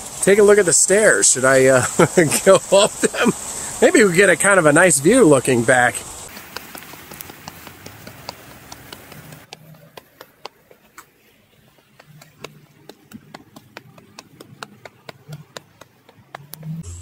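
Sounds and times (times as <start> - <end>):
footsteps on concrete stairs: 6.3 - 16.8.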